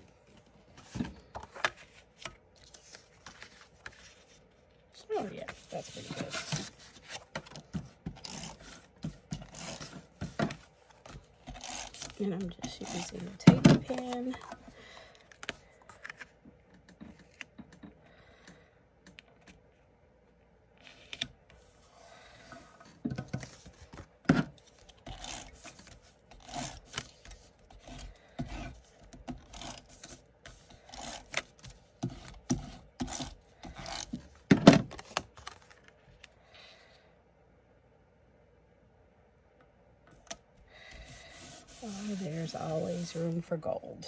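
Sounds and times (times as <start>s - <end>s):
paper scraping: 5.2s - 10.4s, 40.9s - 43.5s.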